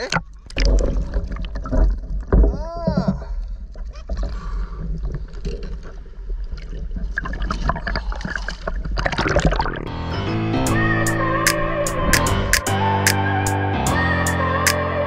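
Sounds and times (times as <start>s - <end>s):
guitar music: 9.9s - 15.0s.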